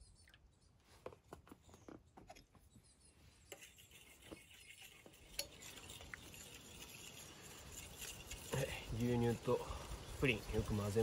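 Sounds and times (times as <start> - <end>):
utensil stirring in metal pan: 3.5 - 11.0.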